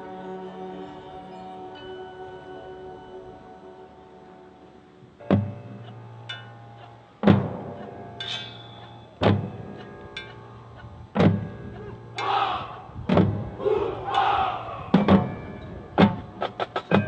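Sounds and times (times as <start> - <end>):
heavy percussion hits: 12.2 - 17.0
rushes of noise: 12.4 - 17.0.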